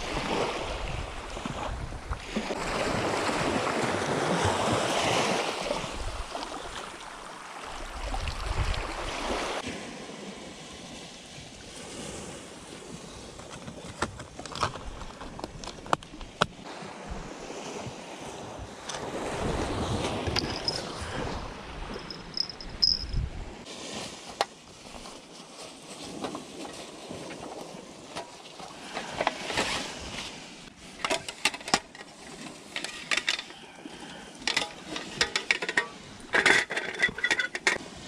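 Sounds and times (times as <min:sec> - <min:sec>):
wind on microphone: 0:00.0 - 0:06.8, 0:07.7 - 0:09.6, 0:14.8 - 0:23.7
sea waves washing: 0:16.5 - 0:38.0.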